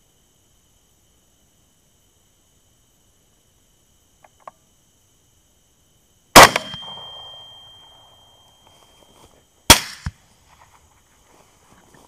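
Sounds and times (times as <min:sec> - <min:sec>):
rifle shots: 0:06.4 - 0:07.5, 0:09.7 - 0:10.1.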